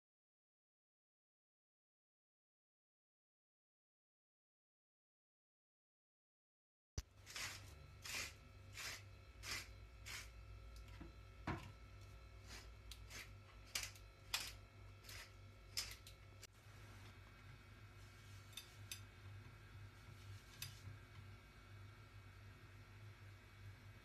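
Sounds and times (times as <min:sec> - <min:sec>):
low steady hum: 0:07.0 - 0:24.0
pepper mill grinding: 0:07.1 - 0:10.9, 0:12.3 - 0:16.4.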